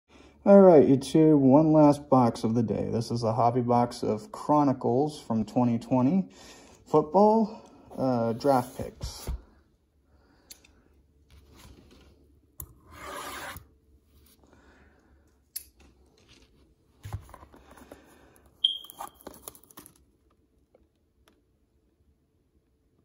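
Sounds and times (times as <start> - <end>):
plastic crinkling: 18.7 - 20.8.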